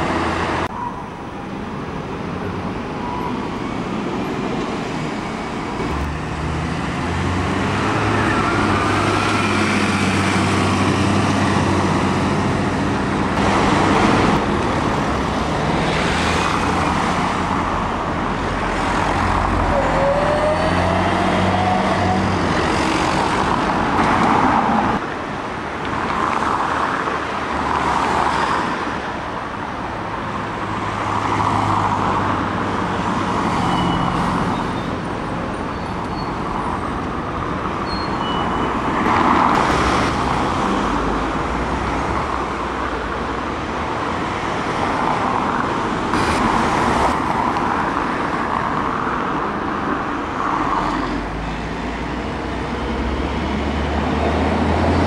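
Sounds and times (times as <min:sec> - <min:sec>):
road traffic: 0:00.0 - 0:55.0
diesel buses pulling away: 0:01.8 - 0:16.1.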